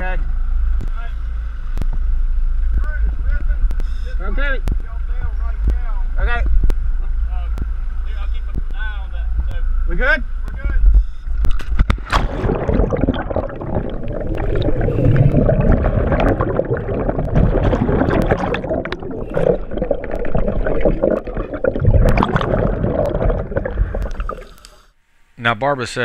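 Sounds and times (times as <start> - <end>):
underwater bubbling: 11.2 - 24.9
splash into water: 11.6 - 24.6.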